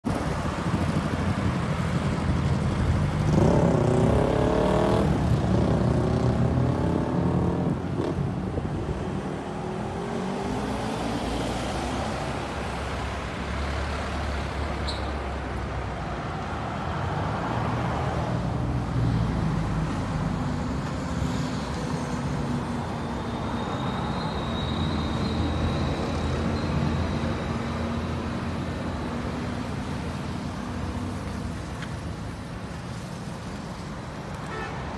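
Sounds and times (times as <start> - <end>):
road traffic passing: 0.0 - 34.9
vehicle engine accelerating: 2.8 - 8.4.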